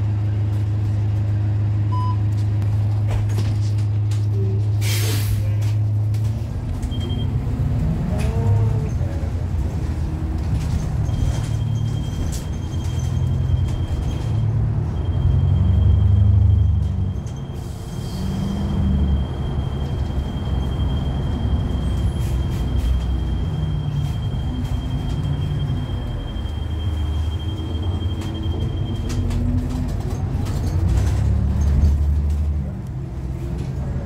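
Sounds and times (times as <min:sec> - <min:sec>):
bus engine drone: 0:00.0 - 0:34.0
air brake hiss: 0:04.8 - 0:05.5.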